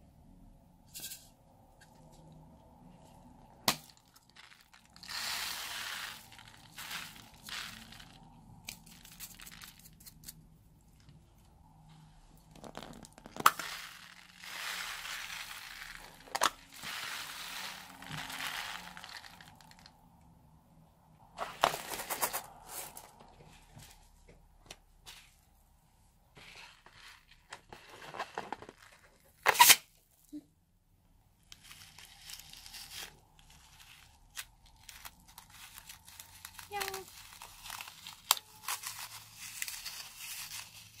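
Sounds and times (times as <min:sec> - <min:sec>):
foam beads pattering over balloons: 0:03.6 - 0:10.3, 0:12.4 - 0:19.9, 0:31.5 - 0:41.0.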